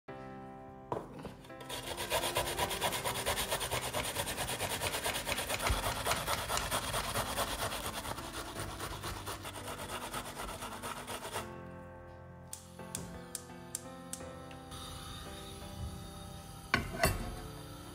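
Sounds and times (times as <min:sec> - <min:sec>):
soft background music: 0:00.1 - 0:17.9
onion rasping on a box grater: 0:01.6 - 0:11.5.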